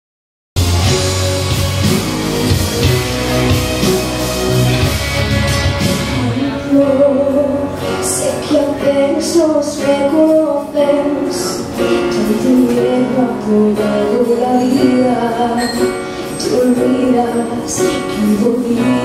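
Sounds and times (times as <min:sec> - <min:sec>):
piano accompaniment: 0:00.6 - 0:19.0
woman singing into microphone: 0:06.2 - 0:19.0.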